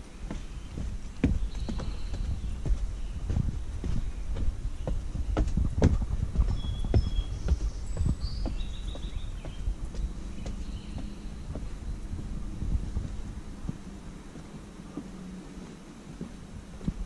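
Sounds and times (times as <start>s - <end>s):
footsteps on wooden stairs: 0.0s - 17.0s.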